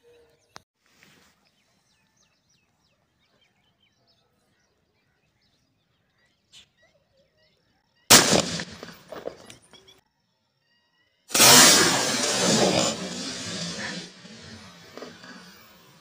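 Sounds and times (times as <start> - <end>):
faint bird chirps: 0.0 - 8.1, 9.4 - 11.3
shotgun blast: 8.1 - 9.5, 11.3 - 15.8.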